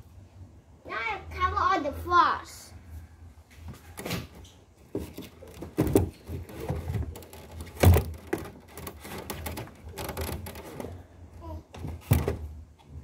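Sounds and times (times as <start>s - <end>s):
knocking and clattering: 4.9s - 11.0s.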